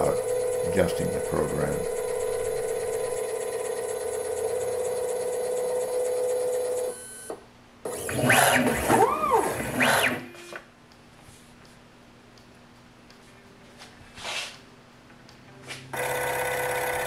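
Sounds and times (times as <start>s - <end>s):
machine axes whining: 0.0s - 10.6s, 16.0s - 17.0s.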